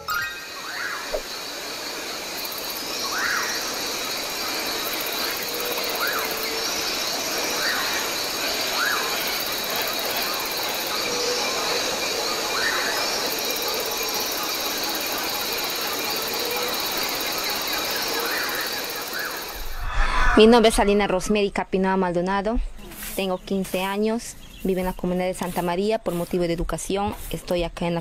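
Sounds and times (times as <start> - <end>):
rising and falling bird calls: 0.0 - 1.7, 2.6 - 9.4
insects hissing: 0.0 - 21.0, 22.8 - 27.7.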